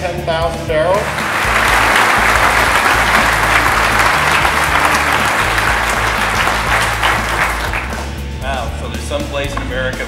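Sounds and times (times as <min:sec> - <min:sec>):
music with low notes: 0:00.5 - 0:10.0
large audience applauding: 0:01.0 - 0:08.1.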